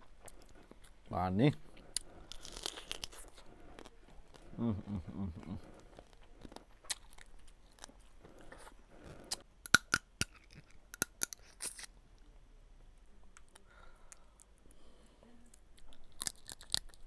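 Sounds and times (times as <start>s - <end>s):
person chewing: 0.0s - 11.9s, 15.8s - 17.0s
crab shell cracking: 15.8s - 17.0s.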